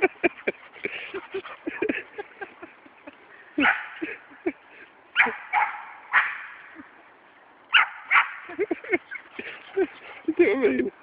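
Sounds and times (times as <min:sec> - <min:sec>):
dog barking: 0:03.6 - 0:04.0, 0:05.2 - 0:06.4, 0:07.7 - 0:08.4.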